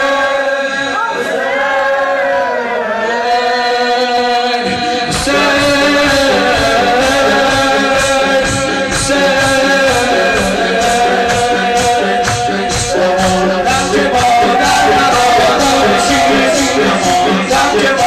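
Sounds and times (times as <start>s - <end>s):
man singing mourning chant: 0.0s - 1.3s, 3.0s - 18.0s
accompaniment with steady beat: 3.6s - 18.0s.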